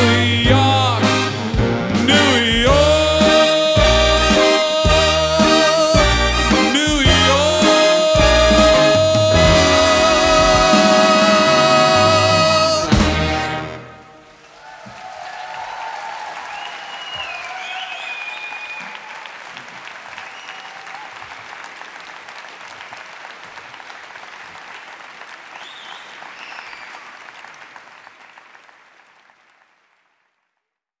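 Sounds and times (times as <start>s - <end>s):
audience applauding and cheering: 0.0s - 30.2s
whistles from crowd: 16.4s - 19.3s, 20.2s - 21.0s, 25.6s - 27.1s.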